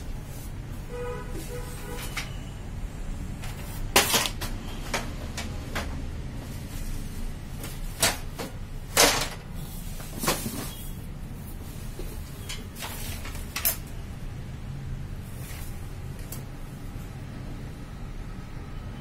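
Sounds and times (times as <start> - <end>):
plastic parts clicking and knocking: 7.6 - 9.5.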